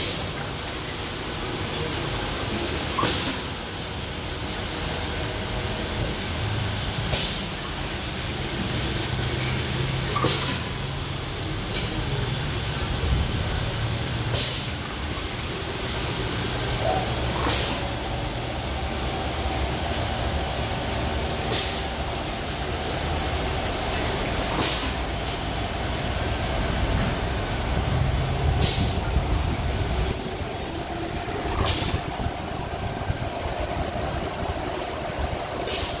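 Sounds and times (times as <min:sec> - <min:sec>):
machine low rumble: 0:17.8 - 0:35.7
air valve hissing: 0:28.6 - 0:33.6.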